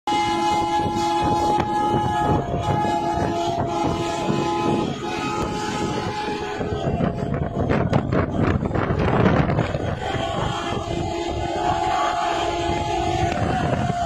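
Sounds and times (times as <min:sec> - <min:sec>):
truck air horn blasts: 0:00.1 - 0:14.0
truck engine and wind rumble: 0:00.1 - 0:14.0.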